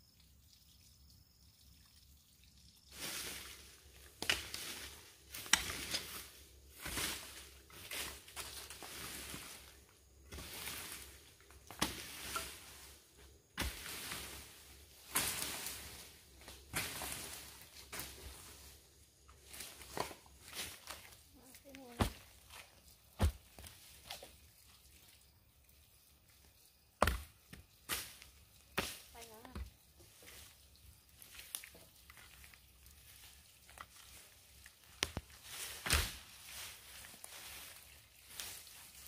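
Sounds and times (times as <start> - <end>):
scraping strokes with sharp hits: 13.6 - 18.8.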